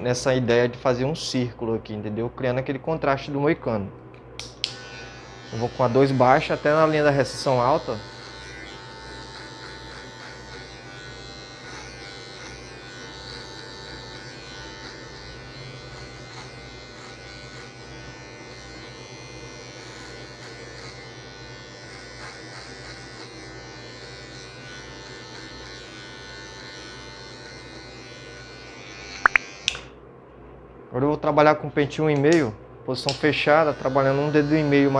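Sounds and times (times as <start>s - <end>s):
electric hair clipper buzzing: 4.4s - 30.0s, 33.0s - 34.9s.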